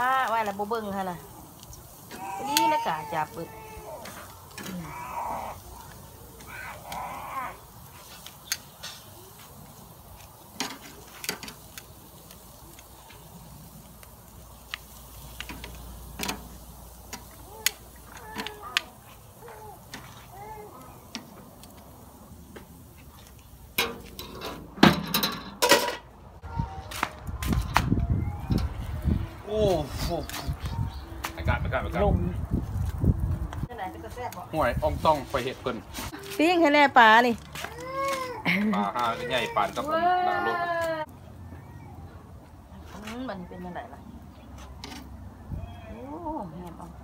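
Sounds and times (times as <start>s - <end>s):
metal tongs scraping grill grate: 0.1s - 26.1s, 44.5s - 45.2s.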